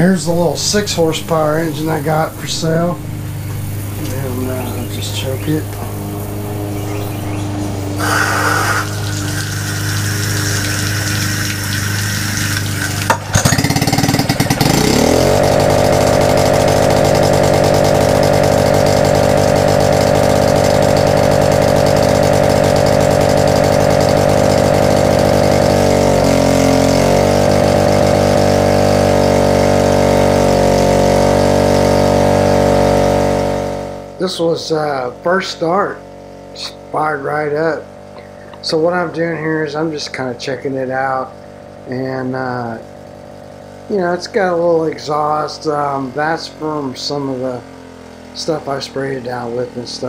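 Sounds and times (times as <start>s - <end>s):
outboard engine pull-started: 0.0s - 33.1s
outboard engine running: 0.0s - 50.0s.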